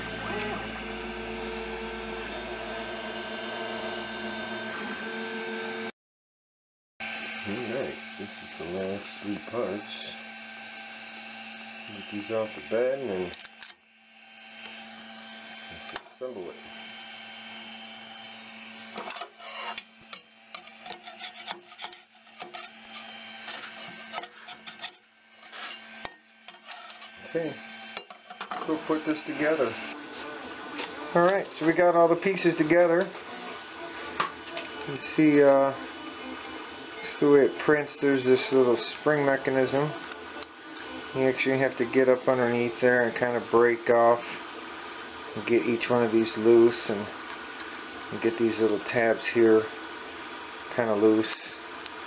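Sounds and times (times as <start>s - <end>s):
stepper motors whining: 7.3s - 20.9s, 28.6s - 52.0s
metal scraper scraping print bed: 18.9s - 27.2s.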